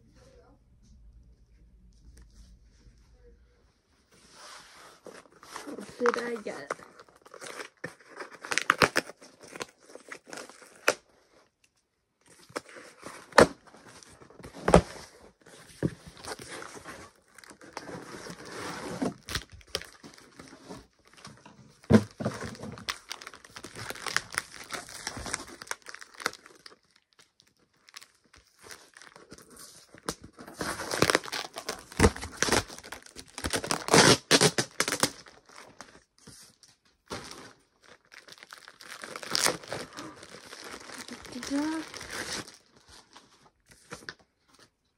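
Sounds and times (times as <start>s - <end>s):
cardboard packaging tearing: 5.0s - 11.1s, 12.3s - 36.0s, 37.1s - 43.1s
plastic wrapper crinkling: 5.1s - 11.2s, 15.9s - 44.7s.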